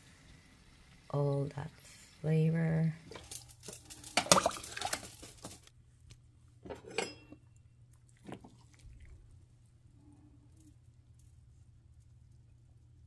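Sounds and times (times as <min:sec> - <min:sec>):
metal spoon clinking on pot: 0:06.8 - 0:07.4.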